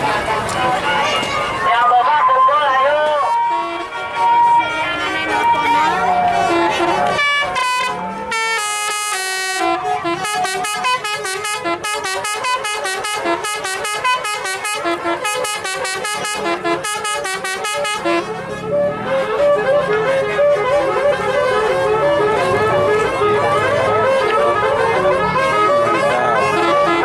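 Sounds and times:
multi-tone bus horn melody: 0:00.8 - 0:27.0.

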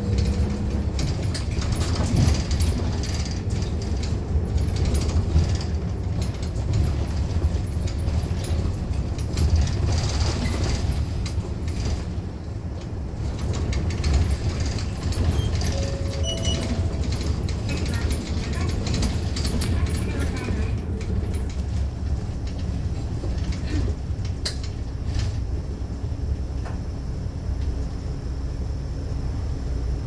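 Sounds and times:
bus engine and tyres rumbling: 0:00.0 - 0:30.0
cabin fittings rattling: 0:13.2 - 0:21.7.

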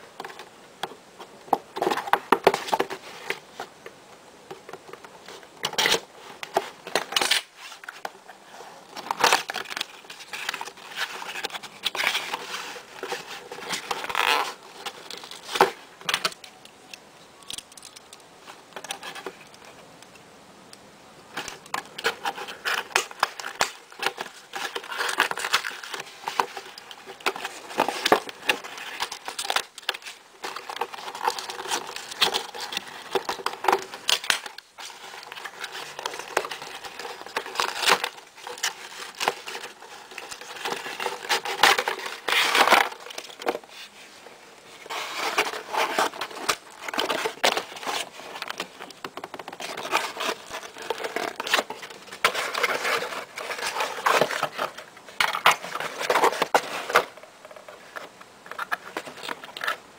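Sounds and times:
plastic packaging crinkling: 0:05.6 - 0:16.6, 0:21.3 - 0:59.9.

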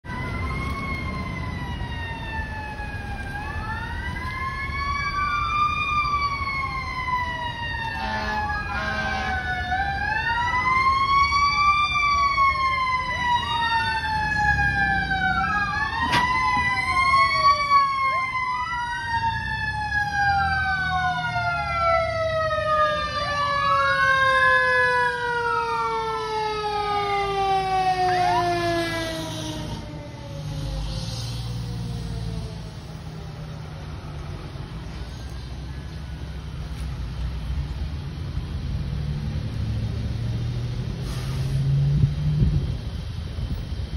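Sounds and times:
fire engine siren wailing: 0:00.0 - 0:43.9
fast sweeping siren tones: 0:00.1 - 0:34.1
horn burst: 0:08.0 - 0:09.5.

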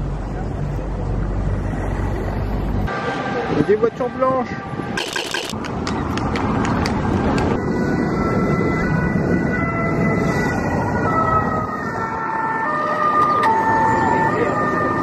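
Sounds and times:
traffic: 0:00.0 - 0:15.0
siren: 0:07.5 - 0:15.0.

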